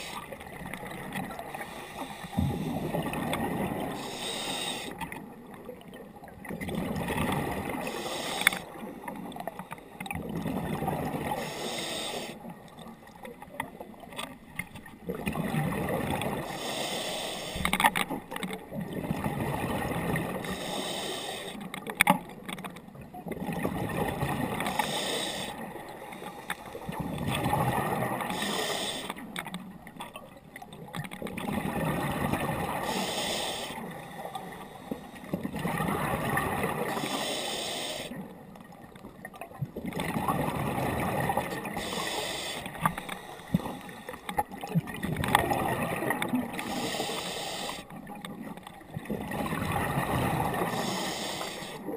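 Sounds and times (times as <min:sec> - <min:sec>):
scuba regulator breathing: 0:00.0 - 0:00.4, 0:01.5 - 0:03.1, 0:03.9 - 0:05.0, 0:07.8 - 0:08.8, 0:11.3 - 0:12.5, 0:16.4 - 0:17.8, 0:20.3 - 0:21.7, 0:24.6 - 0:27.0, 0:28.2 - 0:29.3, 0:32.7 - 0:35.4, 0:36.8 - 0:38.2, 0:41.4 - 0:44.4, 0:46.5 - 0:48.0, 0:50.4 - 0:51.9.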